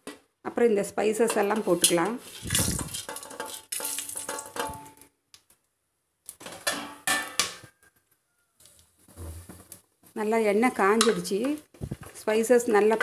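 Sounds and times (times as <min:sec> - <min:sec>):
spices sizzling in hot oil: 0:00.9 - 0:05.1.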